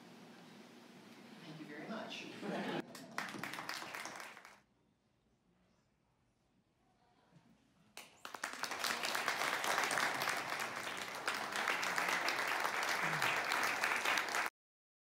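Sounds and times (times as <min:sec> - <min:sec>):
audience applauding: 0:02.8 - 0:04.6, 0:08.0 - 0:14.5.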